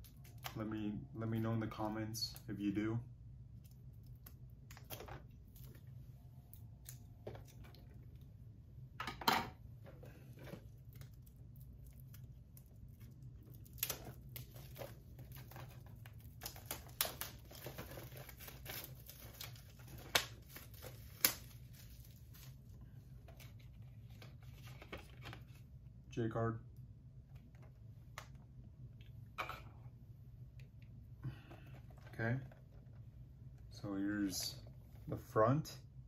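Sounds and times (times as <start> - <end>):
plastic wrap crinkling and tearing: 10.3 - 25.6.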